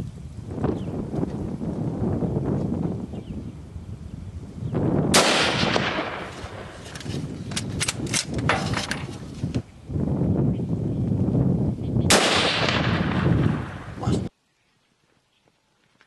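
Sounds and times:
rifle shot with echo: 5.1s - 6.8s, 12.1s - 14.0s.

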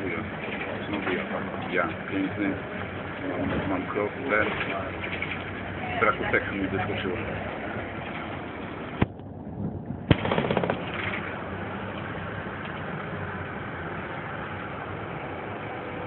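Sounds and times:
bus engine and road noise: 0.0s - 16.0s
brief rattle: 4.3s - 5.6s, 10.1s - 12.9s.

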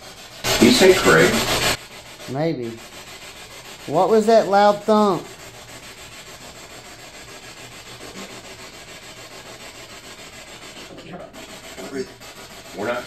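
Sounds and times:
radio static fluttering: 0.5s - 1.8s.

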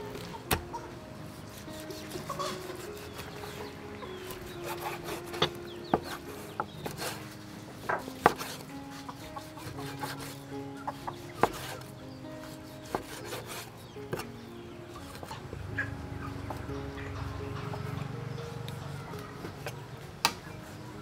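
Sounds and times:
cleaver chopping meat on board: 7.9s - 8.6s, 11.4s - 11.8s.

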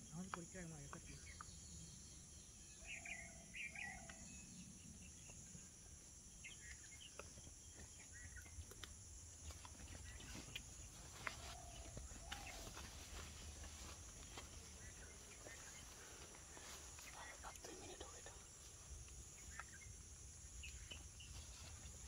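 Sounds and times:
bird chirps: 0.1s - 5.6s, 19.3s - 22.0s.

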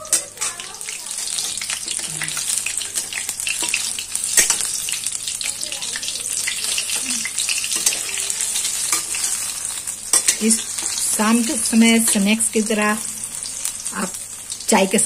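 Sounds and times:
chillies deep-frying in oil: 0.0s - 15.0s
metal spatula clinking on pan: 0.1s - 4.8s, 7.7s - 9.4s, 10.1s - 11.0s.

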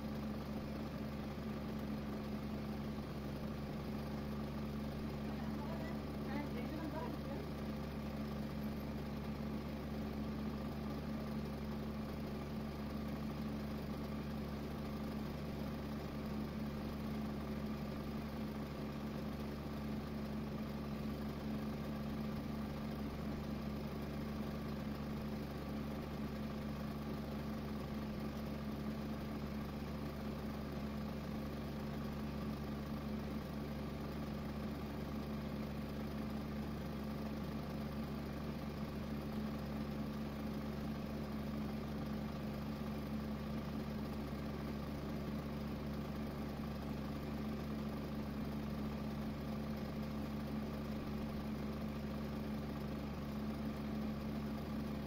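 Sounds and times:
steady mechanical hum: 0.0s - 55.0s.

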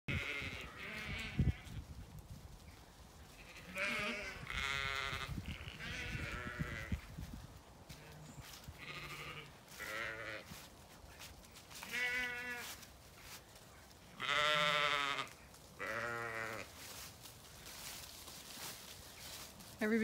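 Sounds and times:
sheep bleating: 0.1s - 1.8s, 3.4s - 7.0s, 8.8s - 10.6s, 11.8s - 12.8s, 14.2s - 16.7s.

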